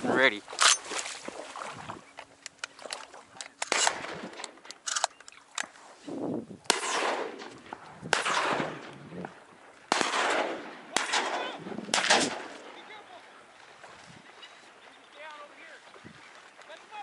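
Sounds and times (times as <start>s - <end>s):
shotguns firing: 3.6s - 5.1s, 6.7s - 8.9s, 9.9s - 12.8s.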